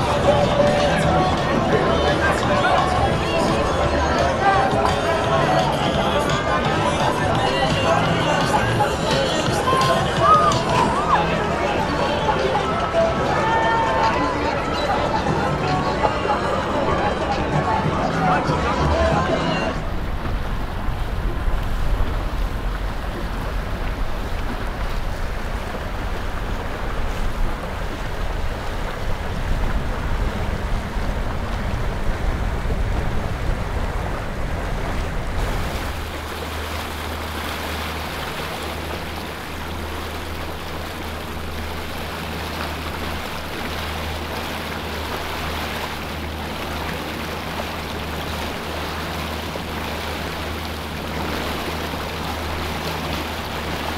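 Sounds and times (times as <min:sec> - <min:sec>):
low hum: 0:00.0 - 0:48.8
boat motor running: 0:00.0 - 0:53.9
water noise: 0:00.0 - 0:53.9
wind noise: 0:19.6 - 0:36.4.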